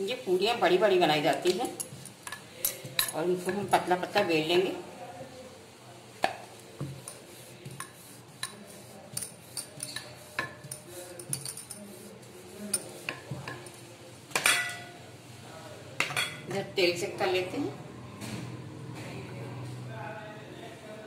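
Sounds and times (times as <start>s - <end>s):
rolling pin rolling dough: 6.2s - 13.9s.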